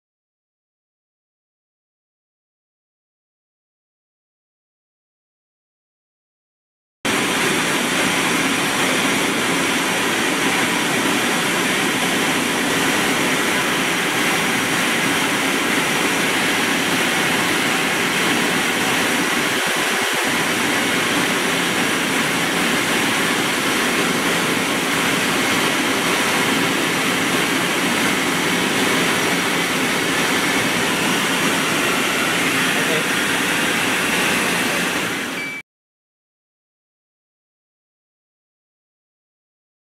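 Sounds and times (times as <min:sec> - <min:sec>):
fans rushing air: 0:07.1 - 0:35.6.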